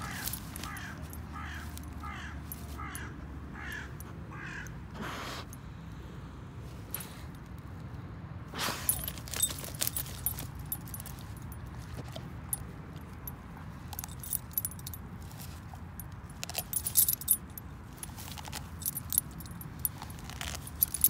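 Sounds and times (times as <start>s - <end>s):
leash snap and collar ring jingling: 0.0s - 3.1s, 8.6s - 21.0s
dog digging in dry grass: 0.0s - 3.9s, 8.5s - 21.0s.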